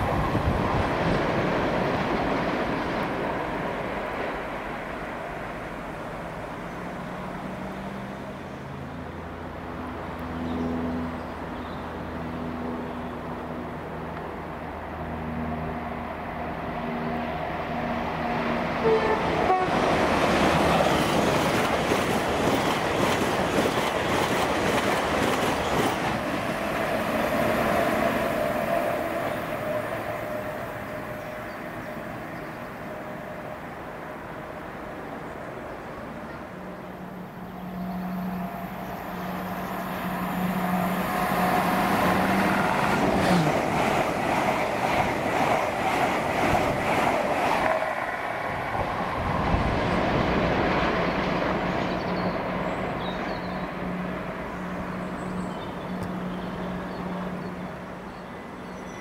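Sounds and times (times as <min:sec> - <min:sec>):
train rushing rumble: 0:00.0 - 0:58.6.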